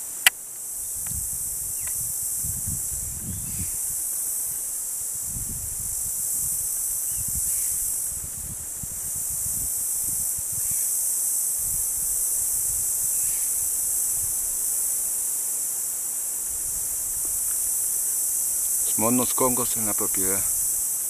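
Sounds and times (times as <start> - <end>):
insect chorus buzzing: 0.0 - 21.0
wind on microphone: 0.8 - 10.9, 11.6 - 14.6.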